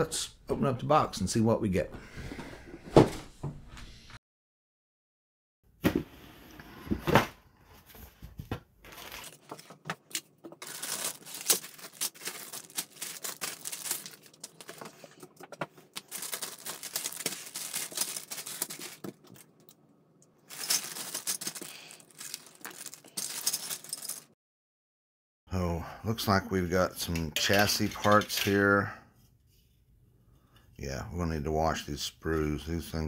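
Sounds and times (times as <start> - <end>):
plastic bags crinkling: 8.8 - 19.7, 20.4 - 24.4
plastic parts rattling: 8.9 - 19.8, 20.4 - 24.3, 27.0 - 28.6.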